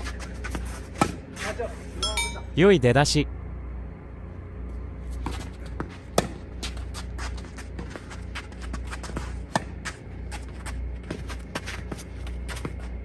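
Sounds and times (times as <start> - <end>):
low hum: 0.0 - 13.0
footsteps and shoe scuffs: 5.1 - 13.0.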